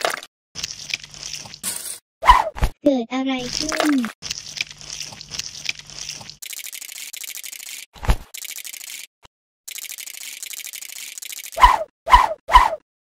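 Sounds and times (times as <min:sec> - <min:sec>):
rapid high-pitched clicking: 0:05.6 - 0:09.1, 0:09.7 - 0:11.6.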